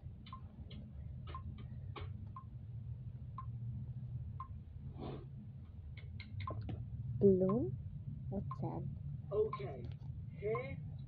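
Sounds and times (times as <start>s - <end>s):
low steady hum: 0.0s - 11.0s
clock ticking: 0.2s - 2.5s, 6.0s - 7.7s, 8.4s - 8.8s.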